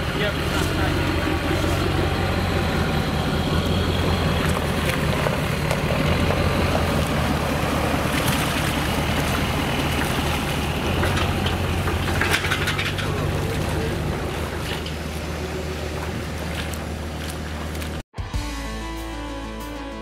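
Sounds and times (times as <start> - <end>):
engines idling with low hum: 0.0 - 18.0.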